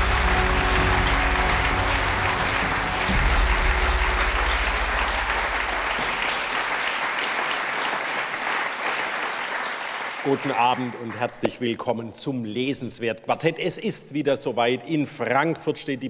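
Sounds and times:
music: 0.0 - 6.8
audience applauding: 0.0 - 11.5.

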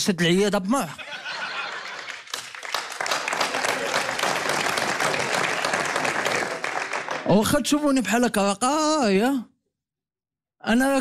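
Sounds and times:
audience applauding: 1.2 - 7.6.

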